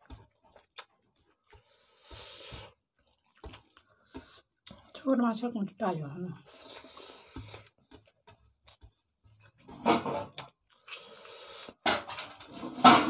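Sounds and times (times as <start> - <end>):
eating noises: 5.8 - 9.6.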